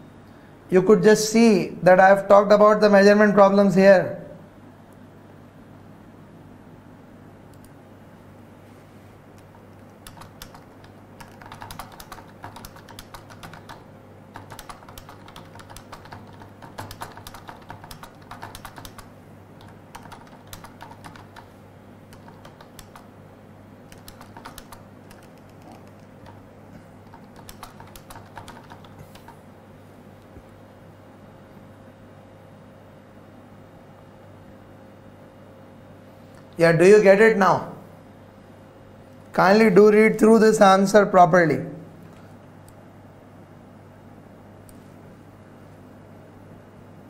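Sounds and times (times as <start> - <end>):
laptop keyboard typing: 9.3 - 23.2, 23.8 - 29.5.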